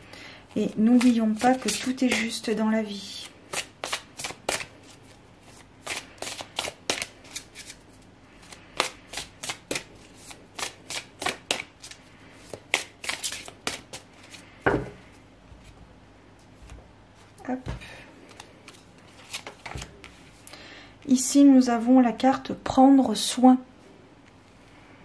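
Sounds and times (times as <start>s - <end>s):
cards being shuffled: 0.9s - 2.3s, 3.5s - 14.5s, 18.2s - 20.2s.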